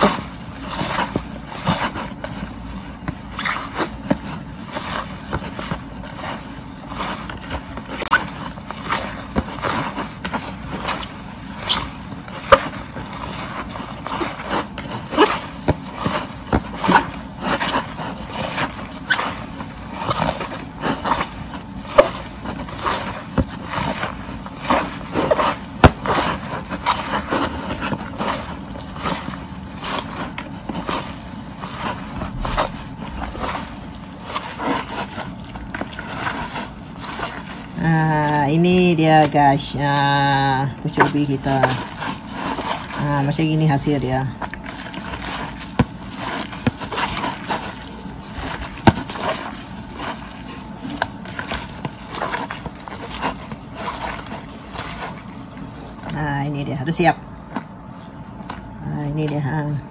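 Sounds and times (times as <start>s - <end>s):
wet rubbing of leaves in basin: 0.0s - 59.9s.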